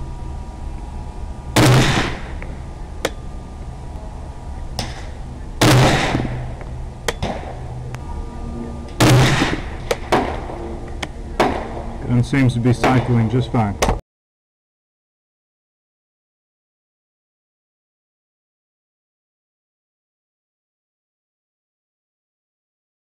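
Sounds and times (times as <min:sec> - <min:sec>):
rifle shots: 0:01.6 - 0:02.4, 0:04.8 - 0:06.5, 0:07.1 - 0:07.6, 0:09.0 - 0:10.6, 0:11.4 - 0:11.9.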